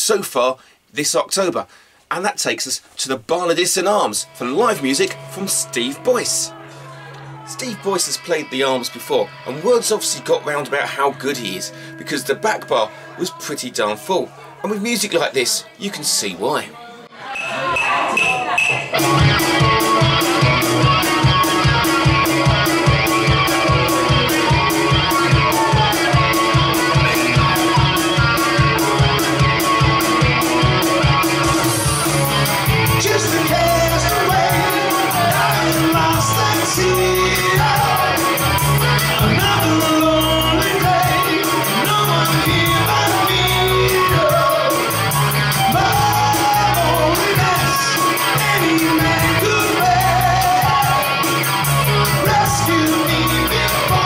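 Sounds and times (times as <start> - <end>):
man singing: 3.8 - 15.0, 31.5 - 54.0
electric guitar strummed: 18.9 - 54.0.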